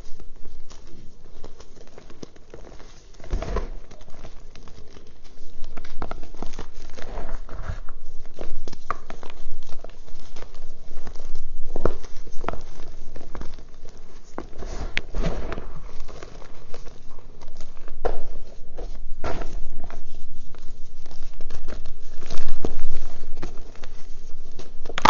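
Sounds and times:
chalk crunching and crumbling: 0.0 - 25.0
sharp chalk cracks: 0.0 - 25.0.

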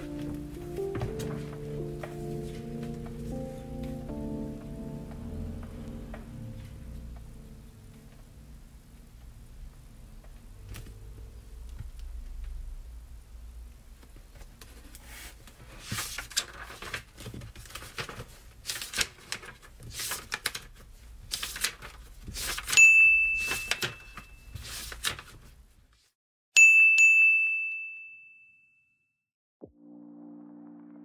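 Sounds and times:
timer chime ding: 22.8 - 24.5, 26.6 - 29.0.

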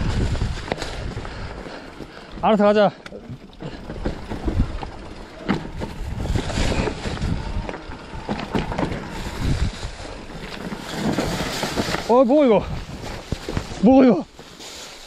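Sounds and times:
wind on microphone: 0.0 - 1.5, 5.7 - 13.8
bike rattling over stones: 0.0 - 15.0.

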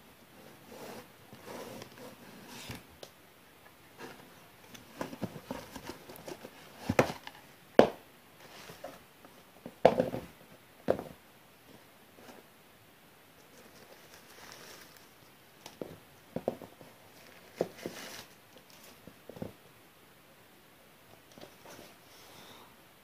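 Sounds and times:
cardboard box handling: 4.9 - 7.4.

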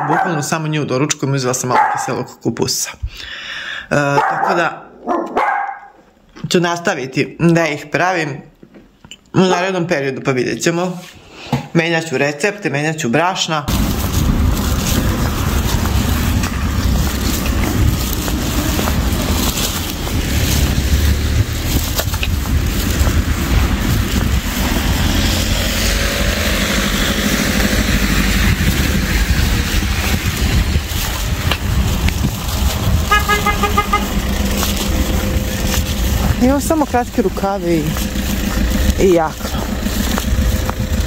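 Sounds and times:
traffic hiss on wet road: 13.7 - 36.5
wind buffeting microphone: 13.7 - 41.0.

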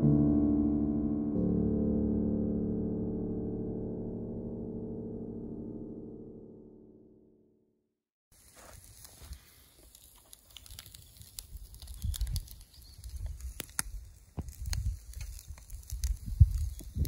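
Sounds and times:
wind buffeting microphone: 10.9 - 17.0.

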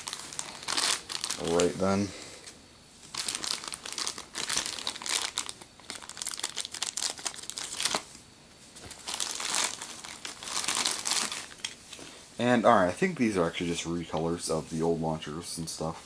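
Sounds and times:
plastic packaging crinkling: 0.0 - 2.1, 3.0 - 8.2, 8.8 - 12.1.

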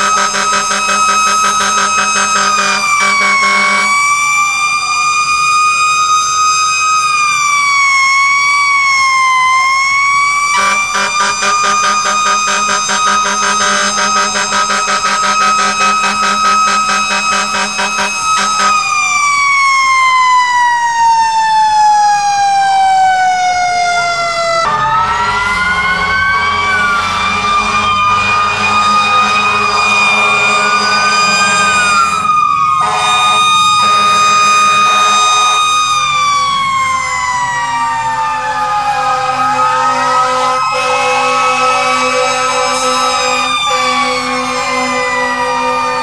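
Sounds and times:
fire truck sirens wailing: 0.0 - 46.0.

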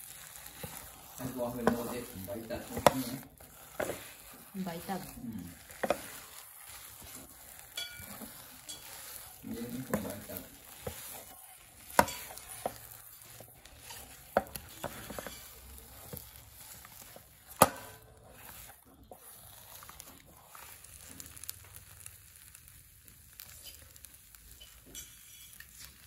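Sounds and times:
spatula scraping sticky dough: 0.0 - 26.0
spatula knocking against pan: 11.9 - 12.8.

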